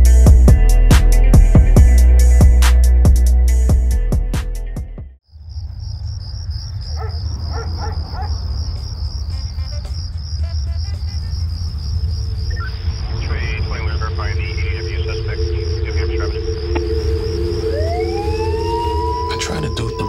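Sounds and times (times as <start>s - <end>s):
music with a beat: 0.0s - 5.0s
crickets chirping: 5.2s - 20.0s.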